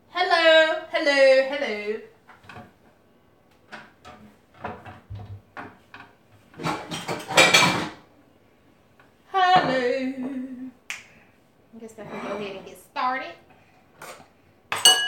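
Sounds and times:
woman speaking: 0:00.1 - 0:02.1, 0:09.3 - 0:10.7, 0:11.7 - 0:13.4
dishes clattering: 0:03.7 - 0:08.0, 0:14.0 - 0:15.0.

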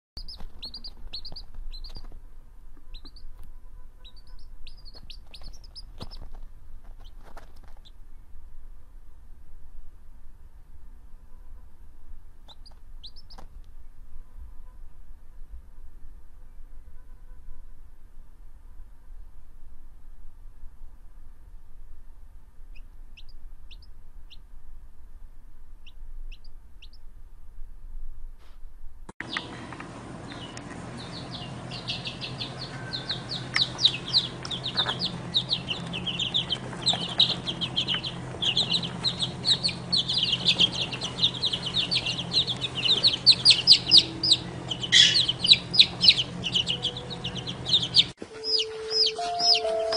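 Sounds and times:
chick peeping: 0:00.2 - 0:02.2, 0:02.8 - 0:08.0, 0:12.4 - 0:13.5, 0:22.7 - 0:24.4, 0:25.8 - 0:27.0, 0:29.2 - 0:49.9
low steady hum: 0:00.2 - 0:49.9.

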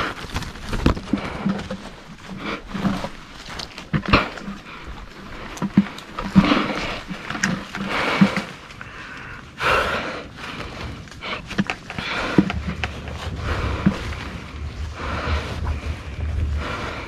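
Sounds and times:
hands and feet scraping bark: 0:00.0 - 0:17.0
wind rumble on microphone: 0:10.4 - 0:17.0.

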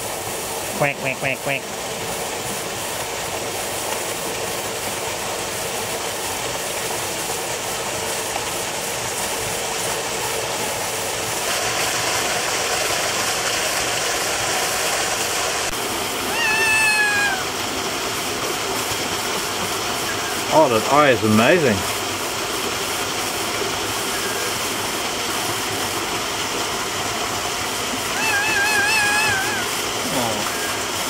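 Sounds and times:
parrot cry: 0:16.3 - 0:17.6, 0:28.1 - 0:30.8.

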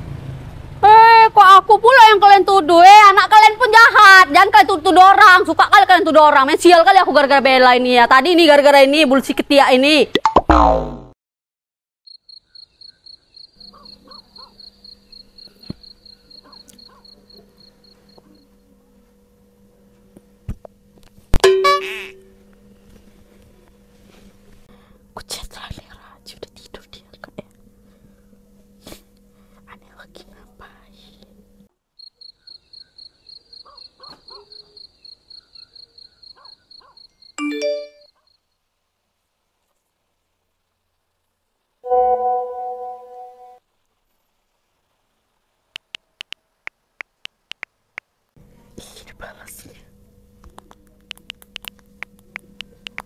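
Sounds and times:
cricket chirping: 0:12.1 - 0:18.6, 0:32.0 - 0:37.4
faint low hum: 0:13.0 - 0:31.8, 0:48.1 - 0:53.0
musical chime: 0:37.4 - 0:38.1, 0:41.9 - 0:43.6.

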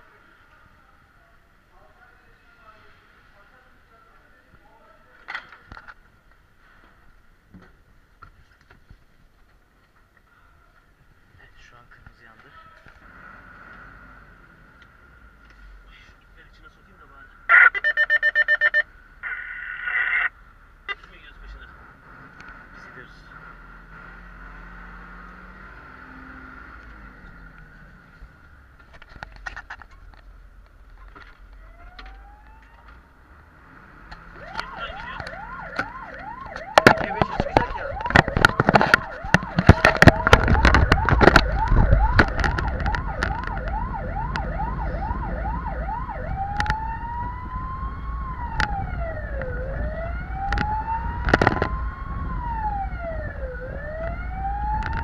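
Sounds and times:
siren yelping and wailing: 0:17.5 - 0:20.3, 0:31.6 - 0:33.0, 0:34.2 - 0:55.0
truck engine rumble: 0:18.7 - 0:55.0.

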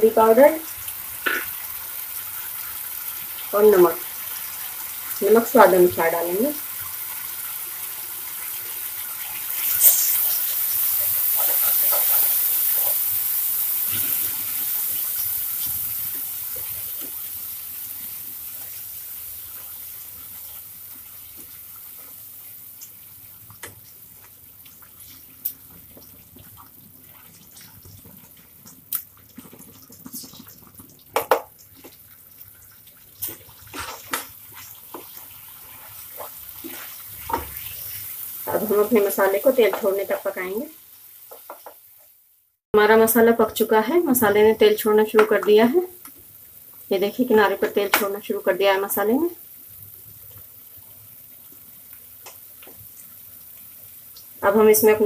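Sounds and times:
paste sizzling in hot oil: 0:00.3 - 0:42.2.

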